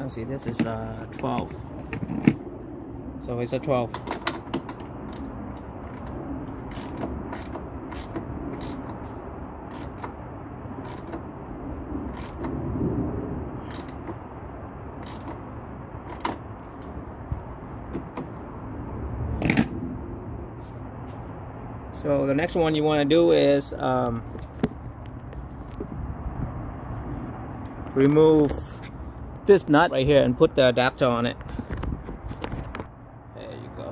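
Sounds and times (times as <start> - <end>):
steady low hum: 0.0 - 23.2
ratchet wrench clicking: 6.5 - 9.0, 9.7 - 10.2, 10.8 - 11.3, 12.1 - 12.6, 13.6 - 14.2, 15.0 - 15.4.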